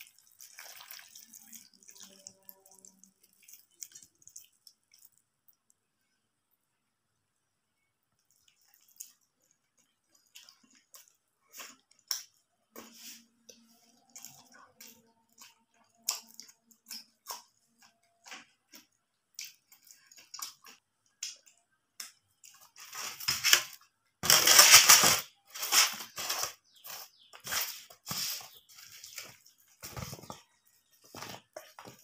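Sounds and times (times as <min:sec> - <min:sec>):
wet chewing sounds: 0:00.0 - 0:05.8, 0:08.2 - 0:23.1
fried pastry crushed by hand: 0:22.9 - 0:26.4.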